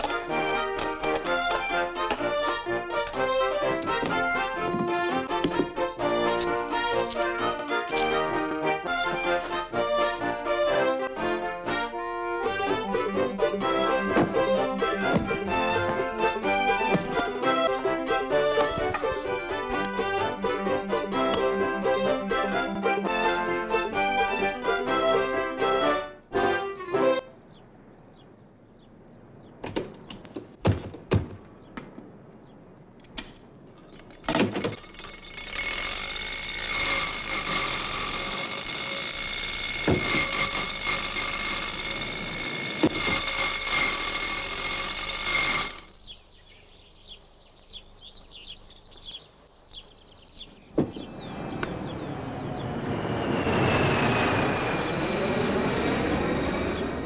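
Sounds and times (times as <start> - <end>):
knocks and clicks: 0.0 - 8.2.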